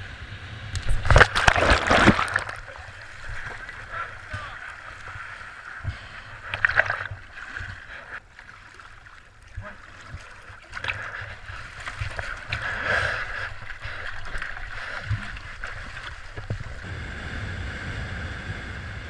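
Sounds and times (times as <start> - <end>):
water splashing around hulls: 0.7 - 16.9
wind buffeting microphone: 15.0 - 19.0.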